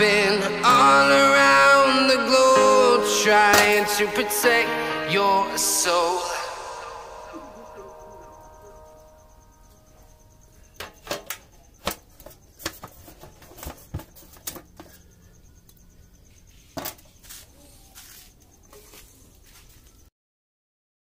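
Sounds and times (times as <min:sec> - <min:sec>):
background music: 0:00.0 - 0:10.2.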